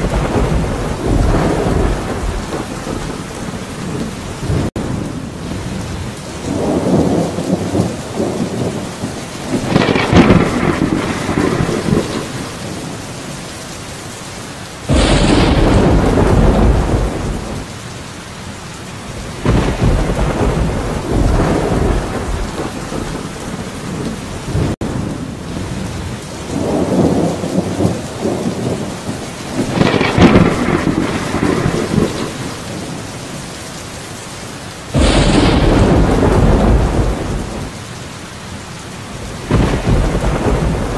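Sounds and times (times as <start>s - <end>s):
loud thunderclap: 0.0s - 5.0s, 6.4s - 13.0s, 14.9s - 17.7s, 19.2s - 24.9s, 26.5s - 33.0s, 34.9s - 37.8s, 39.2s - 40.9s
rolling thunder: 0.0s - 13.2s, 14.9s - 17.7s, 19.2s - 33.4s, 34.9s - 37.8s, 39.1s - 40.9s
steady rain falling: 0.0s - 40.9s.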